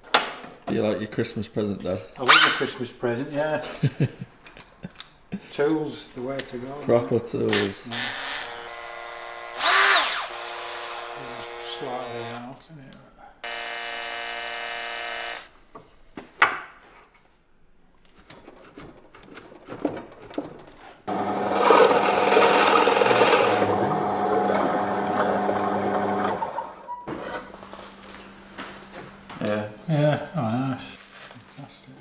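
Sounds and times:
cordless drill spinning: 7.9s - 12.0s, 13.4s - 15.5s, 21.1s - 26.6s
drill press boring into wood: 7.9s - 12.4s, 13.4s - 15.5s, 21.1s - 26.9s
drill press motor hum: 8.1s - 12.3s, 13.4s - 15.5s, 21.1s - 27.7s.

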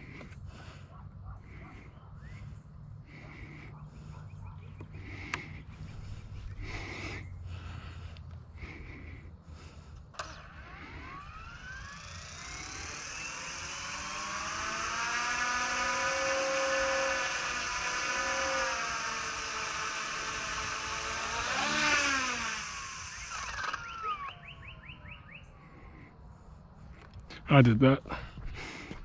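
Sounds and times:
rc helicopter motor whine: 4.7s - 26.1s.

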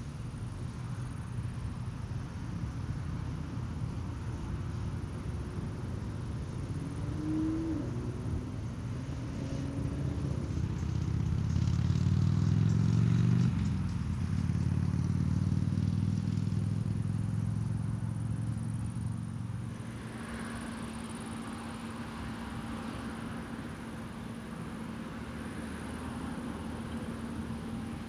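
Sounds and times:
combine harvester drone: 13.2s - 28.0s.

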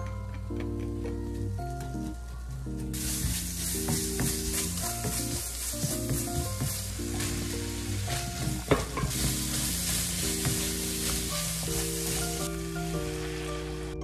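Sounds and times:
food sizzling in frying pan: 2.9s - 14.0s.

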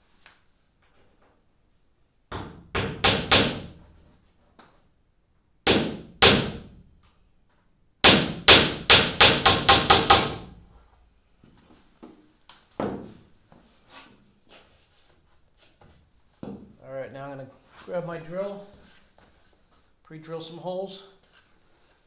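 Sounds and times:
hammer driving nails into wood: 2.3s - 3.8s, 5.7s - 6.7s, 8.0s - 10.5s.

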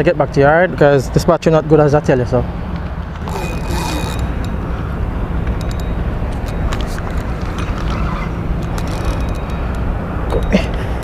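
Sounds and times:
fishing reel clicks and knocks: 3.2s - 4.6s, 8.6s - 10.5s.

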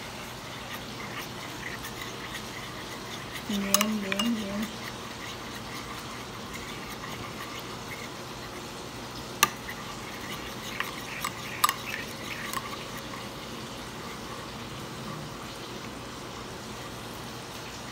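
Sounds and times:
spoon stirring wet mixture: 0.0s - 16.5s
spoon clinking against bowl: 3.1s - 6.8s, 9.4s - 13.1s.

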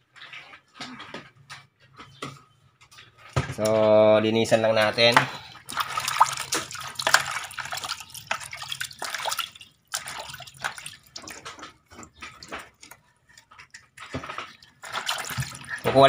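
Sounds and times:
water splashing in plastic basin: 3.3s - 16.0s.

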